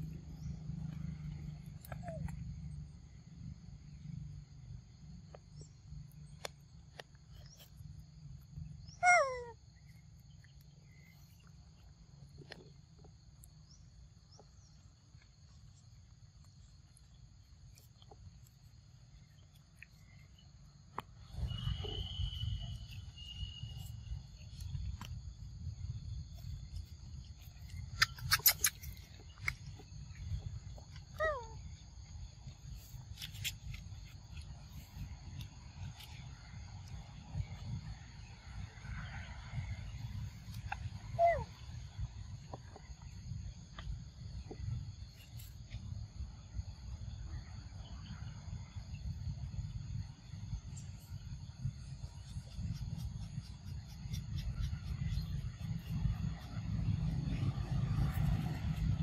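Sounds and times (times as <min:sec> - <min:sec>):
young monkey squeaking: 0:01.8 - 0:02.4, 0:08.9 - 0:09.6, 0:27.5 - 0:29.5, 0:31.1 - 0:31.6, 0:41.2 - 0:41.5
monkeys squeaking: 0:09.0 - 0:09.5, 0:27.9 - 0:29.0
high insect drone: 0:15.8 - 0:40.4.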